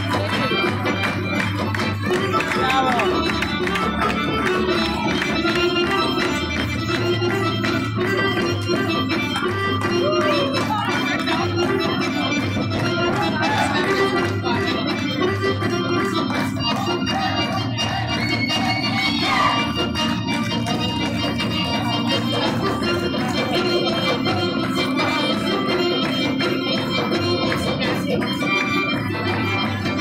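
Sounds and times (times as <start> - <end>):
folk dance music: 0.0 - 30.0.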